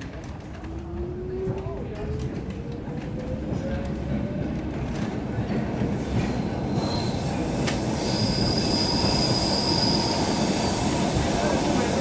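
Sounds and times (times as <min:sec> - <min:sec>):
rumble of wheels on rail: 0:00.0 - 0:12.0
high wheel squeal: 0:06.7 - 0:12.0.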